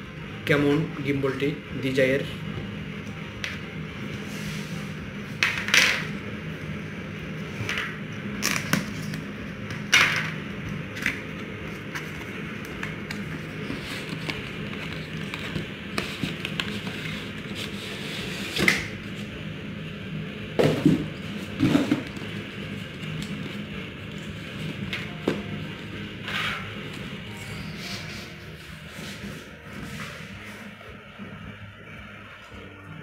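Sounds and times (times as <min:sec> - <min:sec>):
steady low hum: 0:00.0 - 0:33.0
cardboard scraping and rustling: 0:13.2 - 0:18.7.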